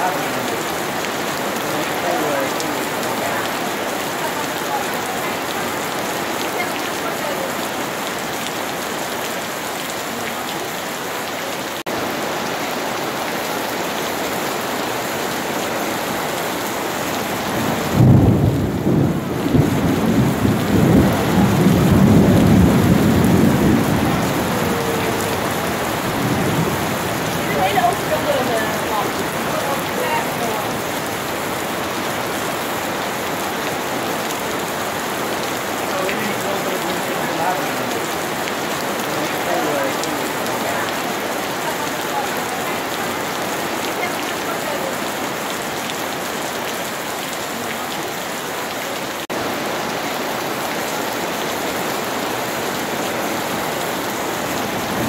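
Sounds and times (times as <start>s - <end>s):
steady rain: 0.0s - 55.0s
low rumble of thunder: 17.4s - 27.7s.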